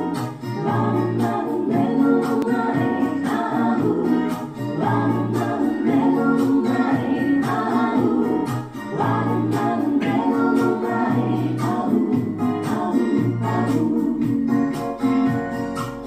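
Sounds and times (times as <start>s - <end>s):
music with a steady beat: 0.0s - 16.0s.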